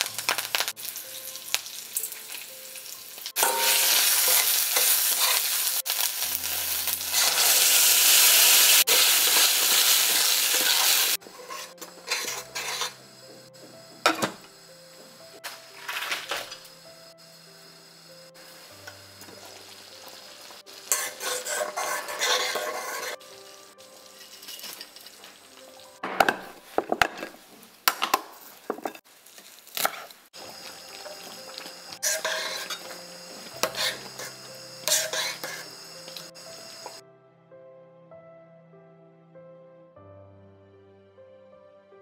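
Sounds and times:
ladle scraping a steel pot: 8.9 - 13.0, 20.9 - 23.2, 32.0 - 33.0, 33.6 - 35.7
kitchenware clicks and knocks: 14.1 - 14.5, 26.0 - 29.0.

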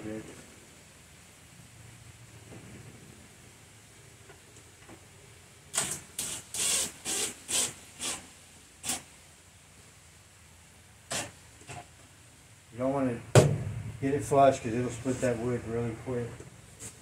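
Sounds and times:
cordless drill driving screw into wood: 5.7 - 8.2, 8.8 - 9.1, 11.1 - 11.3.

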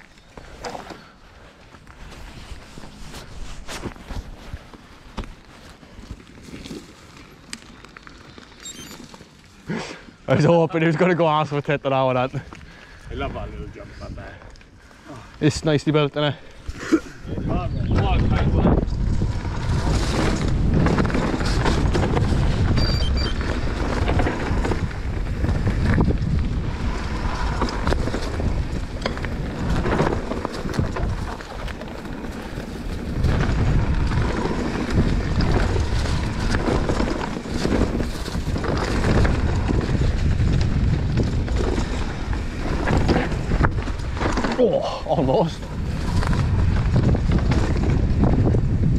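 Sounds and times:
tyre noise on dirt: 0.0 - 10.6, 12.5 - 48.9
wind buffeting microphone: 12.6 - 15.8, 16.4 - 48.9
bike rattling and knocking: 17.8 - 48.9.

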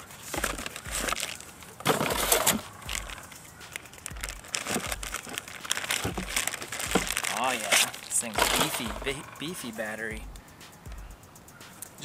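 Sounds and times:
plastic bag crinkling: 0.0 - 9.6
cardboard box opening: 0.1 - 9.2.

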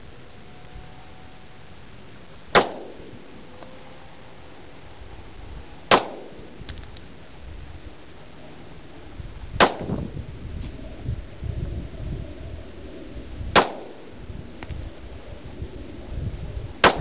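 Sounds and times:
pistol shots with ringing tail: 2.5 - 3.2, 5.9 - 6.5, 9.6 - 10.0, 13.6 - 14.0.

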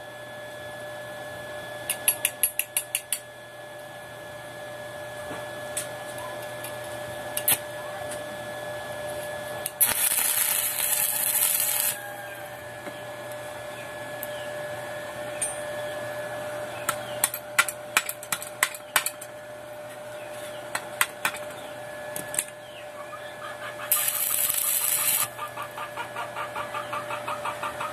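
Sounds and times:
steady hum: 0.0 - 26.0
welding arc crackling and hissing: 9.6 - 12.2, 23.9 - 25.4.

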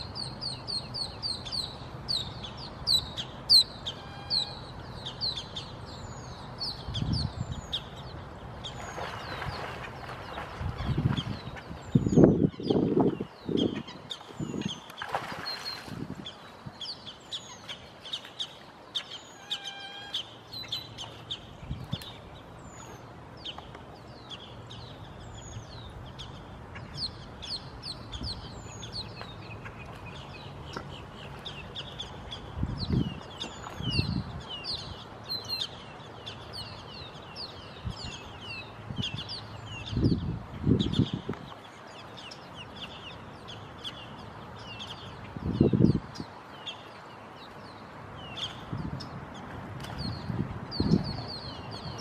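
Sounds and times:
birds chirping: 0.0 - 52.0
heavy splashes in water: 15.0 - 16.1.

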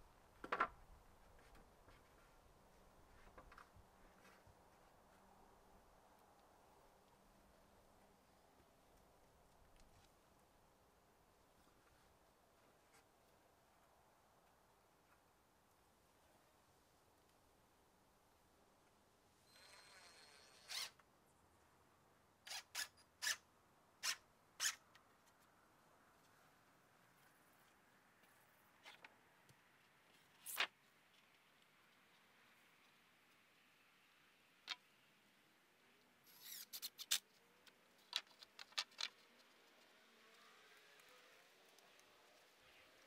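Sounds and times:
cordless drill driving a screw: 19.6 - 21.0.

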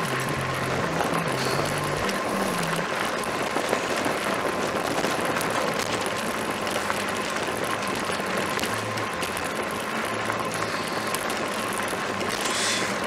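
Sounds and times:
faint steady whine: 0.0 - 13.0
tyre noise on gravel: 0.0 - 13.0
wind rushing over microphone: 0.0 - 13.0.

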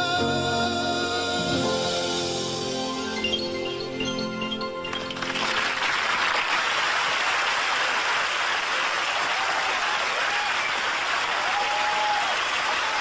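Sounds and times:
crowd applauding: 4.9 - 13.0.

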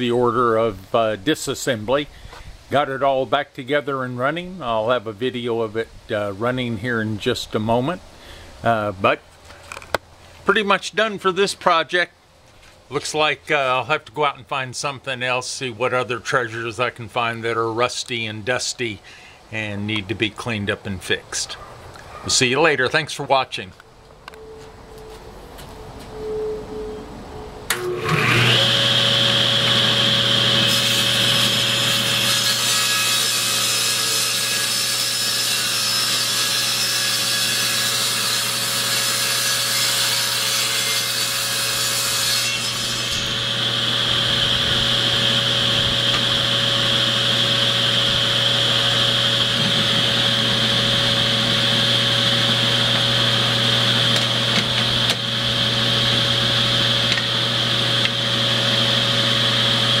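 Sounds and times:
table saw running: 27.7 - 60.0.

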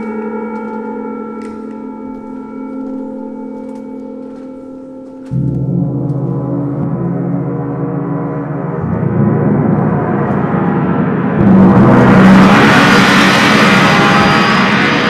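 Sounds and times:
large gong ringing: 0.0 - 15.0.

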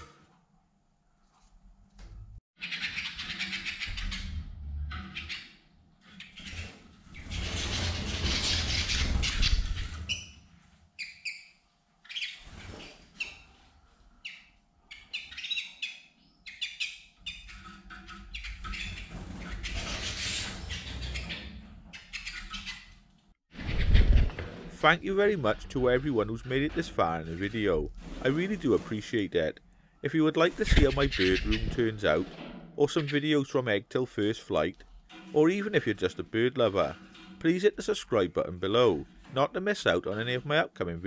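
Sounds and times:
canaries chirping: 2.6 - 10.4, 11.0 - 13.5, 14.2 - 23.0, 30.3 - 32.2.

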